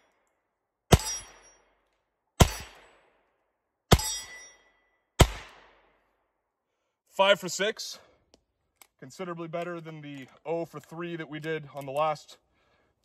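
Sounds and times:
metallic ringing of steel target: 0.9s - 1.6s, 2.4s - 2.9s, 3.9s - 5.4s.

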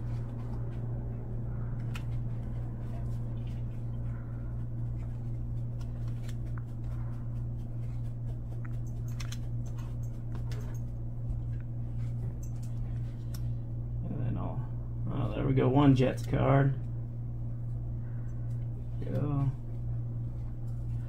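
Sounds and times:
steady low hum: 0.0s - 21.0s
cards flipped and dealt: 5.0s - 7.0s, 8.0s - 10.6s.

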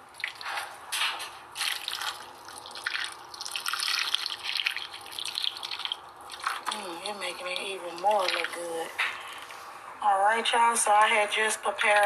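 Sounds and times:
gravy pouring and splashing: 0.0s - 9.5s.

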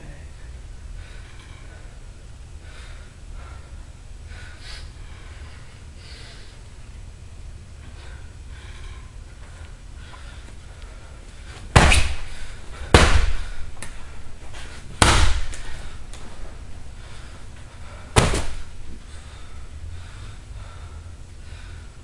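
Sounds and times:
punches on heavy punching bag: 11.7s - 13.6s, 15.0s - 15.6s, 18.1s - 18.7s.

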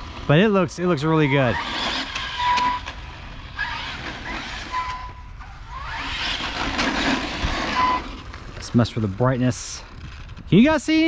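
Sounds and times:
tyre noise on pavement: 1.0s - 11.0s
electric motor whine: 1.3s - 8.5s.

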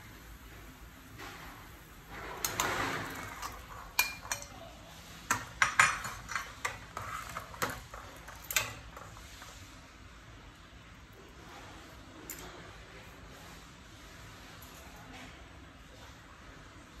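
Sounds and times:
metal ladle clinking against pot: 2.4s - 4.6s.

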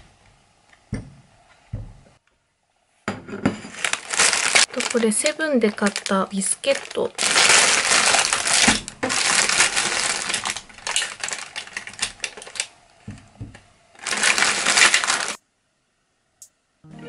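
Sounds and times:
plastic wrapper crinkling: 3.7s - 15.4s.

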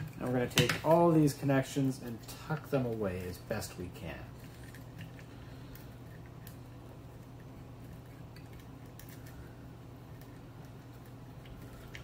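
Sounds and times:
steady low hum: 0.0s - 12.0s
small metal parts clicking: 7.8s - 9.5s.

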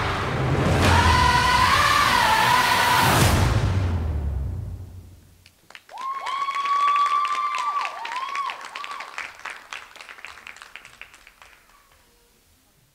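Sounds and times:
music: 0.0s - 5.0s
audience applause: 5.6s - 12.1s.

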